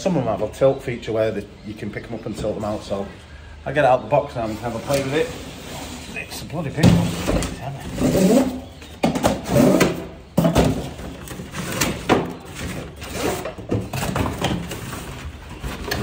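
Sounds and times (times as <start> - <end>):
vacuum parts knocking and scraping: 4.3 - 16.0.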